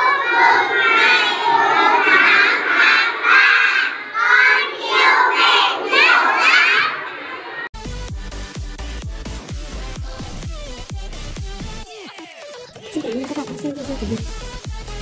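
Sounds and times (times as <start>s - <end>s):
children shouting in chorus: 0.0s - 7.6s.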